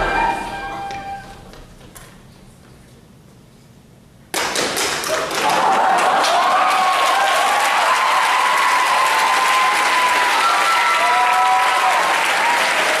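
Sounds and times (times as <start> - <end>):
audience applauding: 4.4 - 13.0
high-pitched cheers: 5.1 - 13.0.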